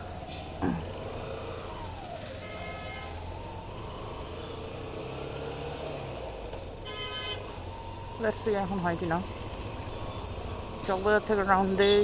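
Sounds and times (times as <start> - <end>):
vehicle horn toot: 2.4 - 3.2, 6.8 - 7.5, 11.7 - 12.0.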